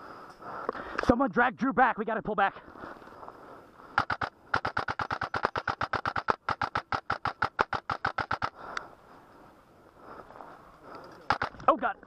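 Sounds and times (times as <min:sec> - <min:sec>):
airsoft rifle full-auto bursts: 0:04.0 - 0:08.5.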